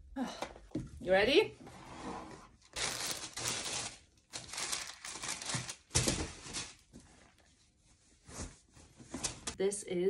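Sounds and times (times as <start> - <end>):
tissue paper crinkling: 2.7 - 8.4.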